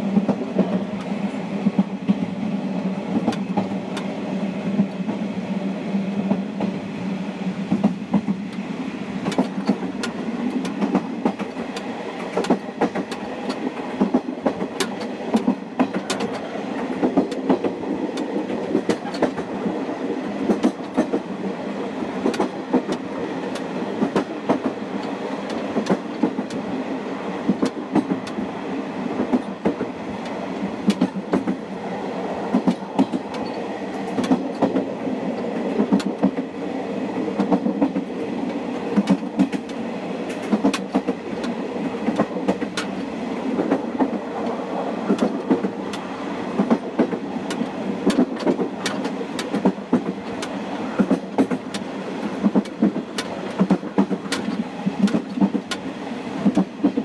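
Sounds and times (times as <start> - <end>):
train rolling noise: 0.0 - 57.0
wheels clicking over rail joints: 9.2 - 19.6, 37.4 - 57.0.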